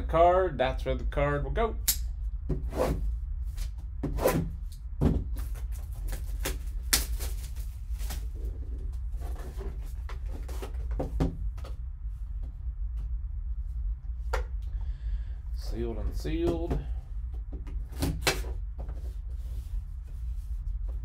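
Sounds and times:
steady low hum: 0:00.0 - 0:21.0
shrink wrap crackling: 0:05.4 - 0:08.4.

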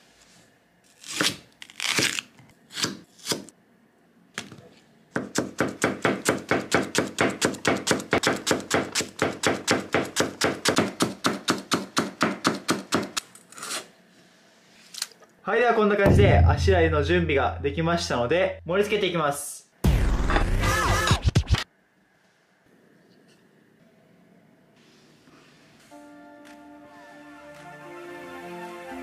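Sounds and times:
knife chopping on plastic board: 0:05.1 - 0:13.2.

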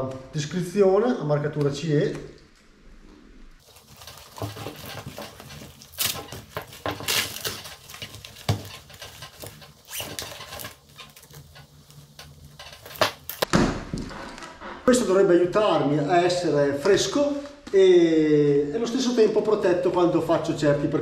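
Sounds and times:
fabric rustling: 0:03.6 - 0:13.5
thump: 0:13.4 - 0:14.8.

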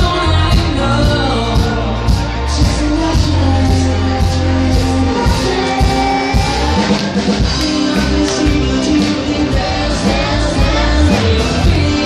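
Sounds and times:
drum kit beat: 0:00.0 - 0:12.0
live band playing: 0:00.0 - 0:12.0
man and woman singing: 0:00.0 - 0:12.0.

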